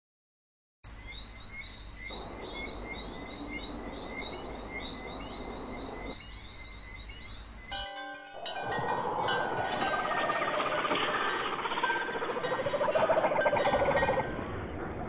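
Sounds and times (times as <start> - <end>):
insect drone: 0.9 - 7.9.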